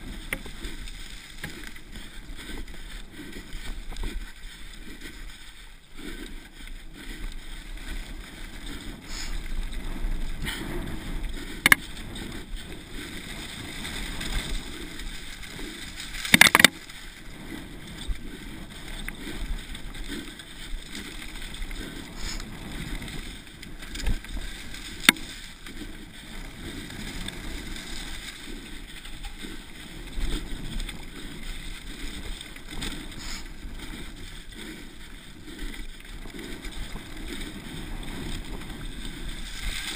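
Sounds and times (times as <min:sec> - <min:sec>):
bike rattling: 0:00.0 - 0:39.9
bike tyre and frame noise: 0:00.0 - 0:39.9
wind rushing on microphone: 0:06.2 - 0:39.9
bike clacking over bumps: 0:07.7 - 0:34.8.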